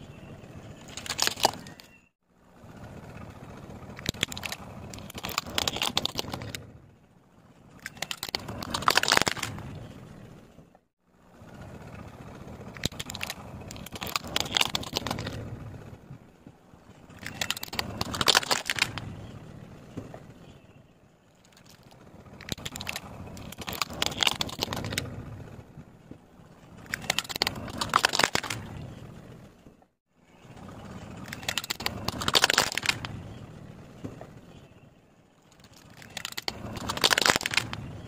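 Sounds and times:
plastic toys cracking and crunching: 0.8s - 2.0s, 3.8s - 6.6s, 7.7s - 9.8s, 12.7s - 15.6s, 17.0s - 19.2s, 21.4s - 25.2s, 26.7s - 28.8s, 31.2s - 33.2s, 35.5s - 38.0s.

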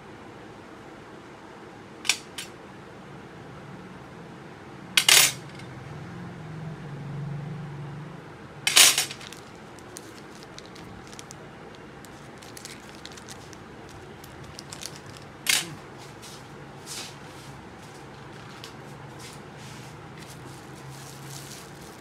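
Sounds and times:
plastic bag crinkling: 9.0s - 16.2s, 20.2s - 22.0s.

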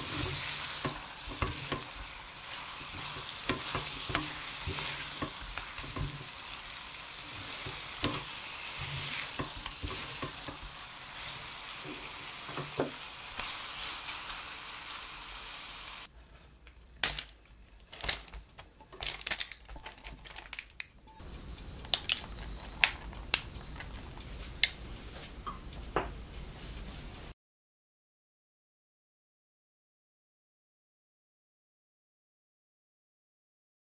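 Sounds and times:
spatula stirring in a pan: 0.0s - 16.0s
food sizzling in a frying pan: 0.0s - 16.1s
parchment paper crinkling: 17.0s - 24.8s.

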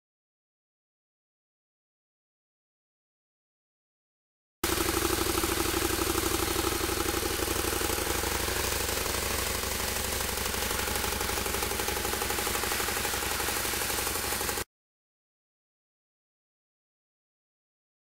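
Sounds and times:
motorcycle engine idling: 4.6s - 14.7s.

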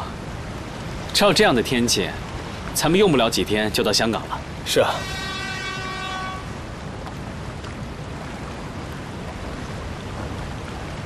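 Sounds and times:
wind and sea noise: 0.0s - 11.0s
ship's horn: 4.6s - 7.0s.

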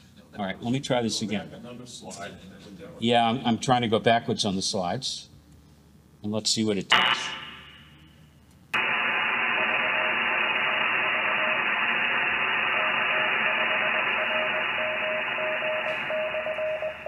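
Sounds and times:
radio static hiss: 8.8s - 17.0s
morse code tone: 12.7s - 17.0s.

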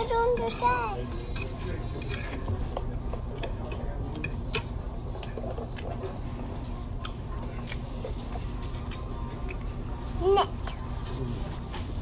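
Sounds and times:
faint voices: 0.0s - 12.0s.

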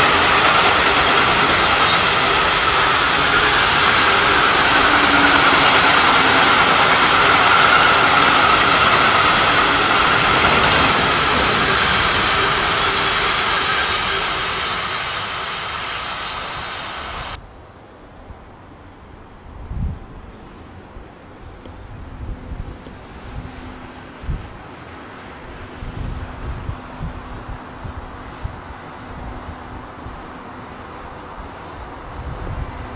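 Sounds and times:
train wheels rolling on rails: 0.0s - 17.4s.

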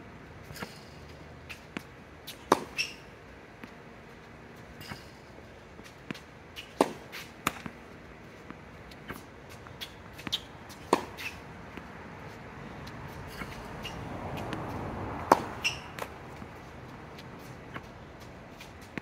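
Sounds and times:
tennis ball bouncing on hard court: 0.5s - 3.8s, 5.8s - 7.8s, 8.4s - 16.6s, 17.2s - 19.0s.

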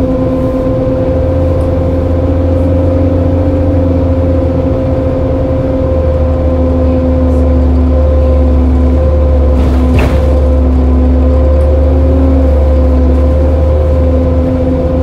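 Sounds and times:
bus diesel engine idling: 0.0s - 15.0s.

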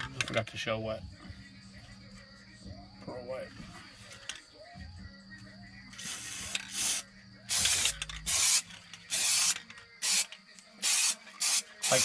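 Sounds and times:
spray paint can bursts: 6.0s - 12.0s.

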